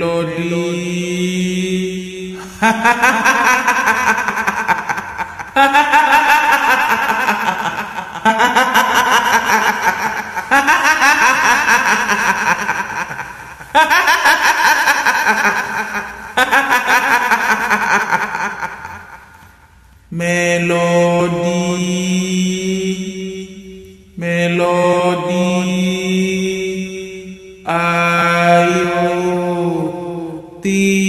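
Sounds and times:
woman's ghostly cackle: 2.4s - 19.6s.

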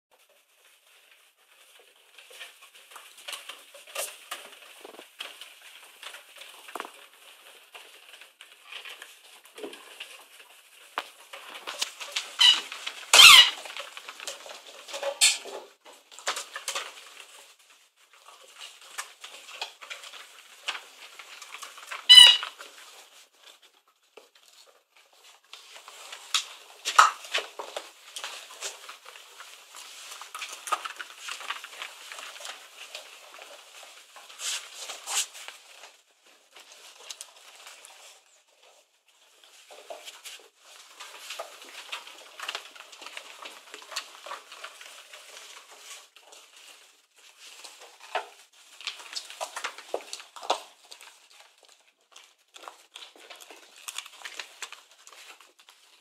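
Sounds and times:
puppies squeaking and yipping: 12.3s - 13.6s, 22.1s - 22.5s
puppy squeals: 12.4s - 13.6s, 22.1s - 22.5s.

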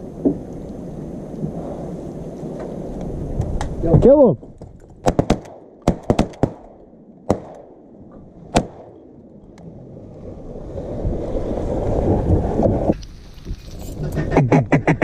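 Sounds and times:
shotgun shots: 5.0s - 7.8s, 8.5s - 9.0s.

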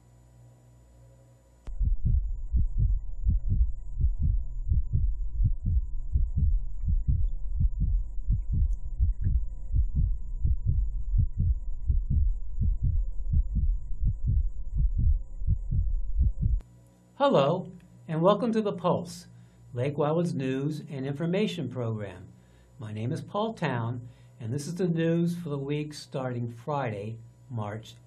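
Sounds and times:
faint hum: 0.0s - 28.0s
deep rapid bass pulsing: 1.7s - 16.6s.

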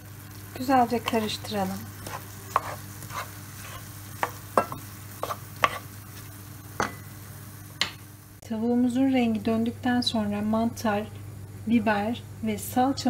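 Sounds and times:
chicken and onions sizzling: 0.0s - 11.0s
wooden spoon scraping pan: 2.0s - 4.4s, 5.2s - 5.9s.

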